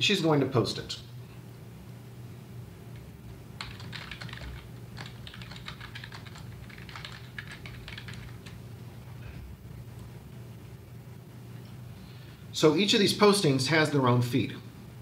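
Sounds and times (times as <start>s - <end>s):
low steady hum: 0.0s - 15.0s
keyboard typing: 3.0s - 8.6s.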